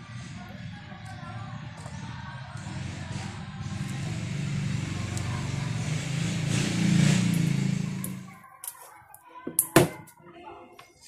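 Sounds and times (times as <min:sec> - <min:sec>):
vehicle engine passing by: 0:00.0 - 0:08.4.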